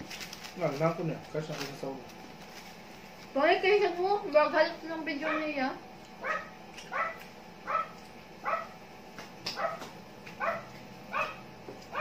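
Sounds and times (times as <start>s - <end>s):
dog barking: 5.2s - 5.5s, 6.2s - 8.8s, 9.6s - 12.0s.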